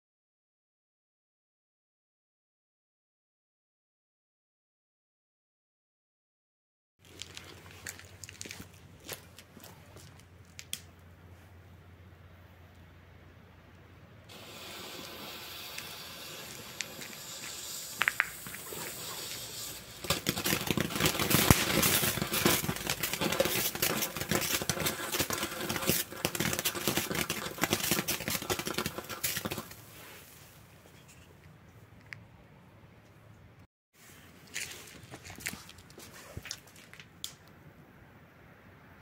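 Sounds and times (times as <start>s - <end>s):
firework fountain hissing and crackling: 14.3s - 30.4s.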